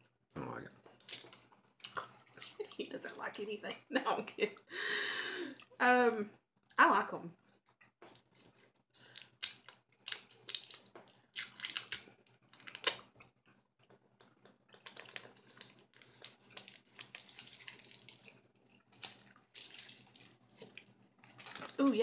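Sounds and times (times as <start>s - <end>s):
candy wrapper crinkling and tearing: 0.9s - 1.4s, 8.1s - 13.2s, 14.8s - 21.8s.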